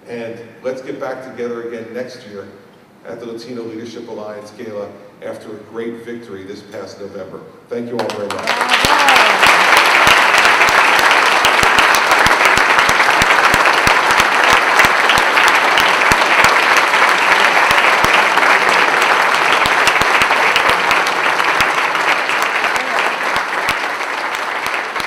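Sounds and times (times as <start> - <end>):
audience applauding: 8.0 - 25.0.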